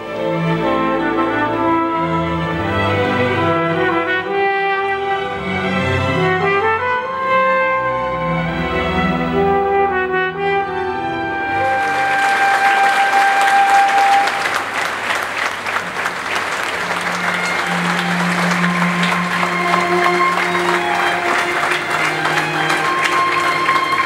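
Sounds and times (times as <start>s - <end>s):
audience applause: 11.5s - 24.0s
orchestral chord: 16.2s - 24.0s
long held notes: 16.5s - 24.0s.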